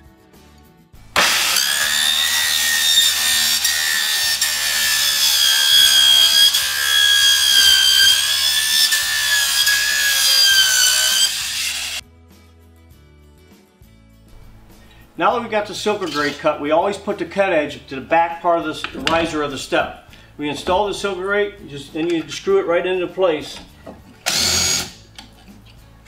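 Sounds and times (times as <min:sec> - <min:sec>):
circular saw cutting plastic: 0:01.1 - 0:12.0, 0:15.9 - 0:16.6, 0:24.2 - 0:25.4.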